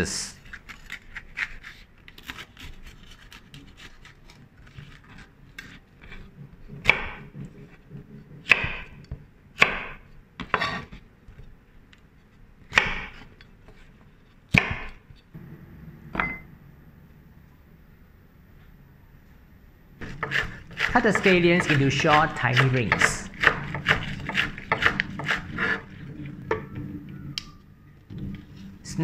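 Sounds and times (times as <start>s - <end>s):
glass bowl clink: 16.2s - 16.5s.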